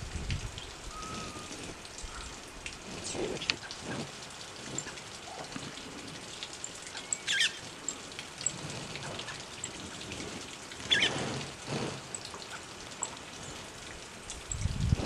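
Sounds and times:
outdoor hiss with crackles: 0.0s - 15.0s
high bird calls: 0.6s - 2.4s, 6.8s - 8.0s, 10.8s - 11.2s.

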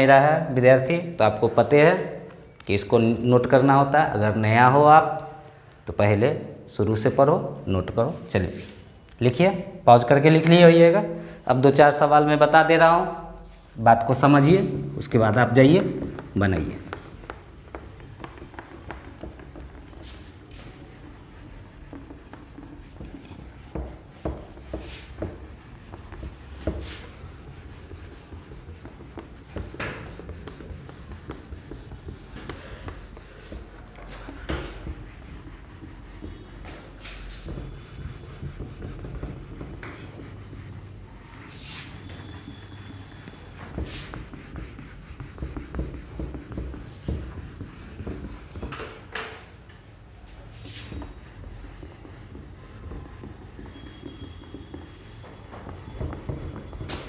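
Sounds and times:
cloth wiping whiteboard: 8.0s - 8.9s, 13.2s - 49.1s, 49.9s - 57.0s.

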